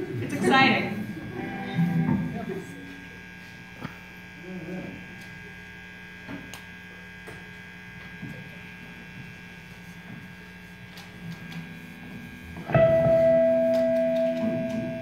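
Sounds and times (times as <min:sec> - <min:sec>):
amplifier electrical hum: 0:00.0 - 0:15.0
electric guitar note ringing: 0:00.3 - 0:03.5, 0:11.3 - 0:15.0.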